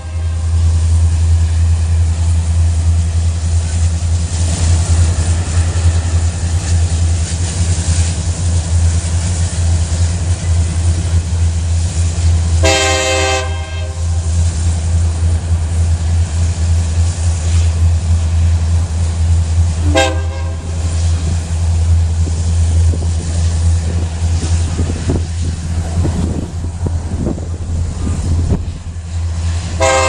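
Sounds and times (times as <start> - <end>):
distant train horn blast: 0.0 - 0.8, 12.6 - 14.2, 19.8 - 20.8, 29.7 - 30.0
freight train rumbling: 0.0 - 30.0.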